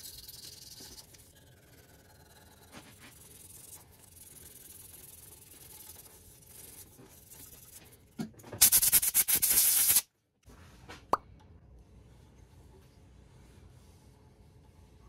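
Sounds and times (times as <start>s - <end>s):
sandpaper hissing on spinning wood: 2.8s - 7.8s, 8.6s - 10.0s
compressed air blow gun blast: 8.6s - 10.0s.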